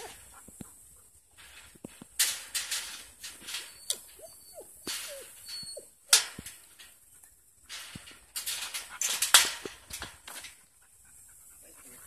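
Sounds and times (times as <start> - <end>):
rustling and scuffing: 0.0 - 10.8
short squeaks: 3.3 - 6.2.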